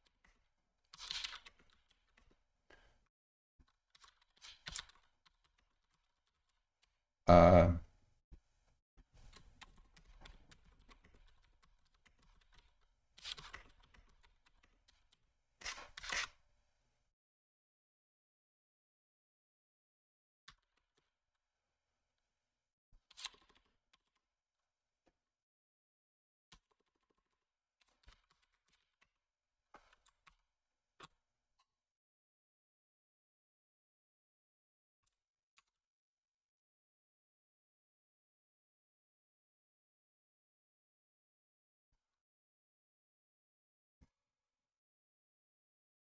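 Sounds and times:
brief voiced sound: 7.3 - 7.8
computer keyboard typing: 9.3 - 14.8.

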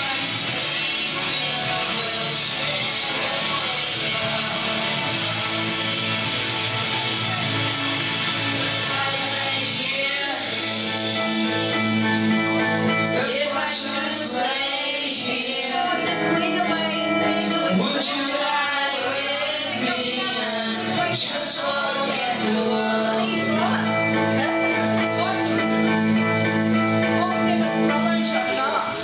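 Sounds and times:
boy singing into microphone: 0.0 - 5.9, 8.6 - 11.2, 13.2 - 25.6
rock backing music: 0.0 - 29.0.

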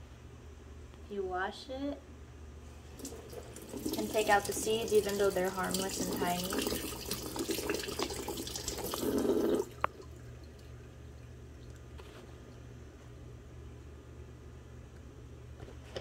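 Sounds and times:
low steady hum: 0.0 - 16.0
tap water running into sink: 3.0 - 10.7.

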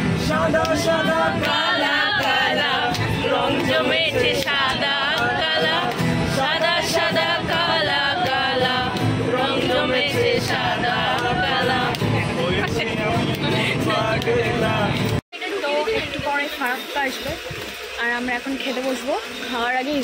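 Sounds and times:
people singing along: 0.0 - 15.2
strummed acoustic guitar: 0.0 - 15.2
man singing: 12.4 - 15.2.

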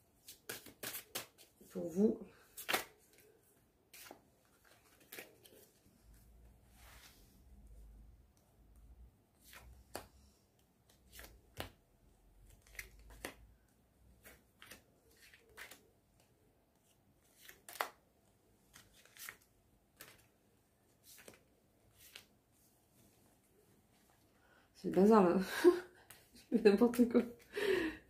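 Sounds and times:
cards flicking and tapping: 0.2 - 1.5, 2.5 - 3.2, 11.1 - 11.8, 12.5 - 13.4, 17.3 - 18.0.

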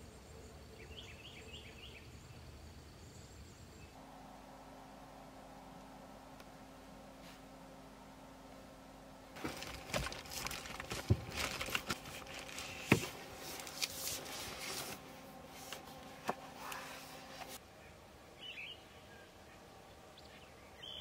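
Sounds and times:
bedding rustling: 9.4 - 17.6.

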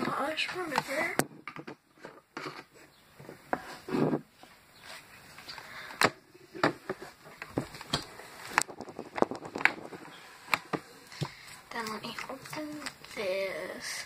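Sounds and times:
small items clicking and knocking: 7.4 - 13.0.

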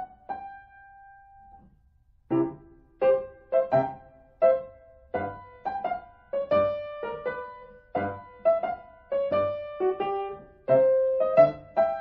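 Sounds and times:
piano melody: 0.0 - 1.7, 2.3 - 12.0.

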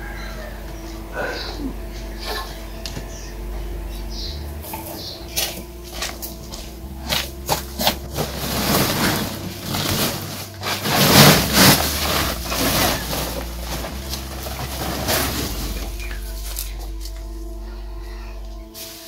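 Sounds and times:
plastic sack rustling: 5.3 - 17.2
greens tumbling to ground: 5.4 - 17.2.

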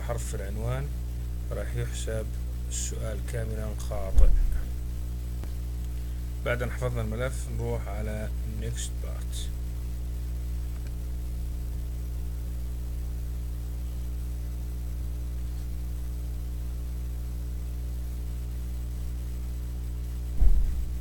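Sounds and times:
electrical mains hum: 0.0 - 21.0
low thump: 4.1 - 4.6, 20.3 - 21.0.

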